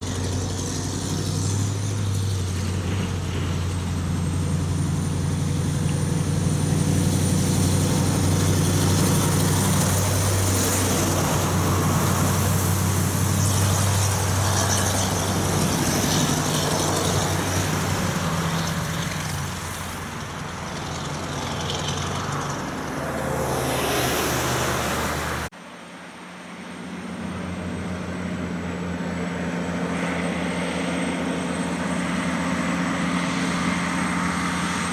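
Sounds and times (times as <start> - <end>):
car passing: 0.0 - 25.5
diesel truck engine: 0.0 - 34.9
distant pulsing truck engine: 0.0 - 34.9
tyre and road noise: 0.0 - 34.9.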